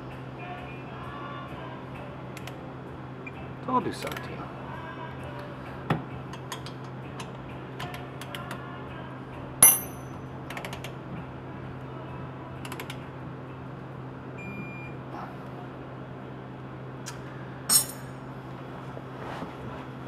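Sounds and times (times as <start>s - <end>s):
metallic clack: 17.7s - 18.2s.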